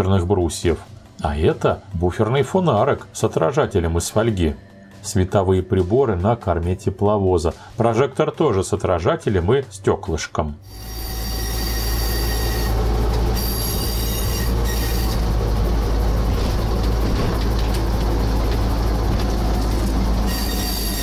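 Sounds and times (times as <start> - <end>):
diesel engine low drone: 10.6 - 21.0.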